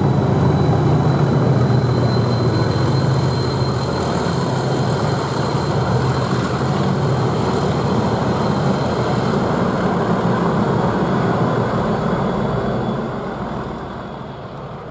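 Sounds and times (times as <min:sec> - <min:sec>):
diesel locomotive drone: 0:00.0 - 0:14.9.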